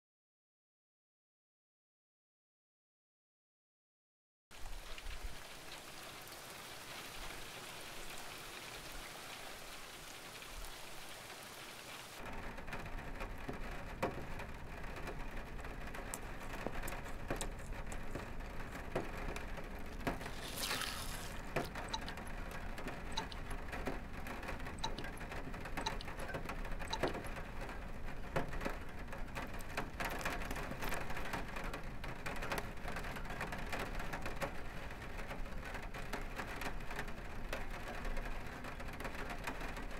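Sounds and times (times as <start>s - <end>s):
rain-like patter: 4.5s - 39.9s.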